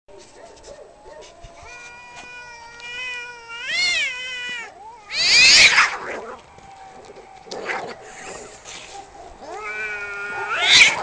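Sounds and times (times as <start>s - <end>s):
cat yowling: 1.1s - 6.4s, 9.4s - 11.0s
cat harsh screech: 3.5s - 6.2s, 9.6s - 11.0s.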